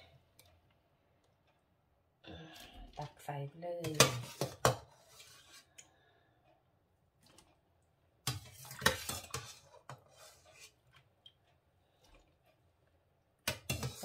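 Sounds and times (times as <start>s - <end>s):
metal skimmer scraping steel pot: 8.3s - 10.8s, 13.6s - 14.0s.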